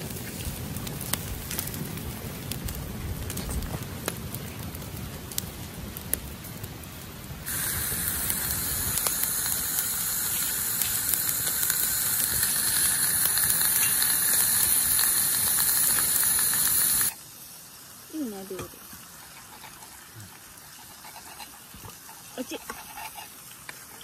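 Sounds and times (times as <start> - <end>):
steak sizzling in a skillet: 0.0 - 6.5, 7.4 - 24.0
wood fire crackling and popping: 0.0 - 17.2.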